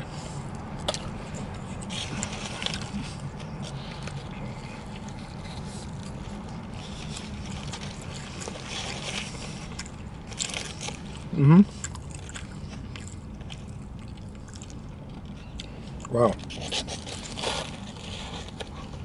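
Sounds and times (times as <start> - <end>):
foil wrapper crinkling: 16.4 - 19.0.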